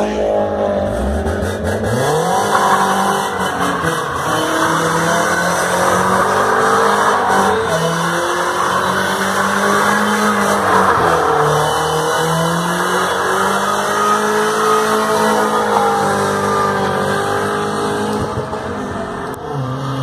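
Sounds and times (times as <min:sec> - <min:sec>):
car engine revving high: 0:00.0 - 0:20.0
tyres squealing: 0:02.1 - 0:17.1.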